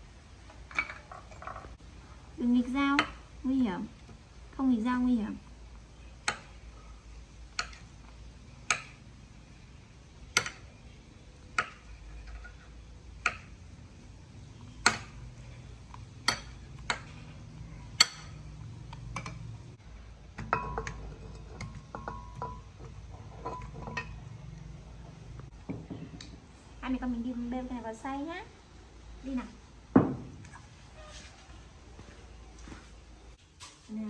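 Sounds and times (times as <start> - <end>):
kitchen utensils knocking: 0.7 - 1.8, 8.5 - 9.1, 10.3 - 10.9, 14.5 - 19.5, 20.3 - 26.1.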